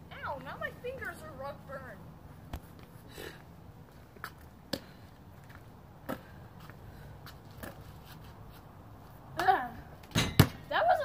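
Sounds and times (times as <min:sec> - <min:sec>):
basketball bouncing on concrete: 0:10.1 - 0:10.7.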